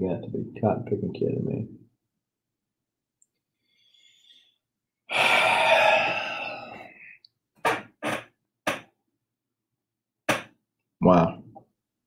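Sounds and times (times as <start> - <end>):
man sighing heavily: 5.1 - 7.2.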